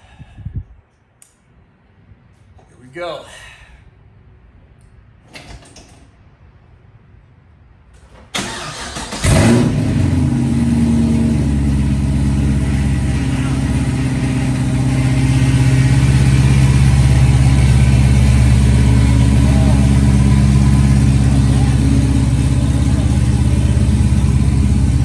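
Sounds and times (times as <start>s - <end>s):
car engine firing and idling: 8.4s - 25.0s.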